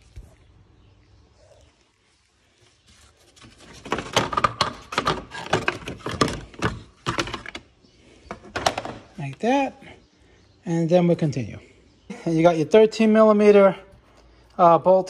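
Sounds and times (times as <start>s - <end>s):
plastic fan shroud clattering: 3.4s - 7.6s.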